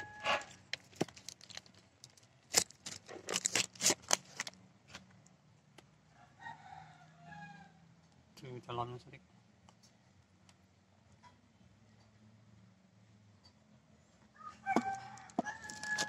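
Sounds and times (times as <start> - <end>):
sharp clicks and scrapes: 0.0 - 5.3, 14.7 - 16.0.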